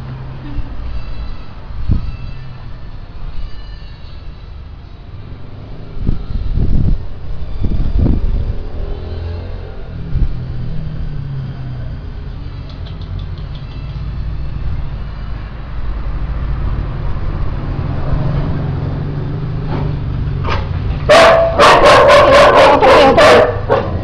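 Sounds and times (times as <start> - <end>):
dog barking and yelping: 20.5 - 24.0.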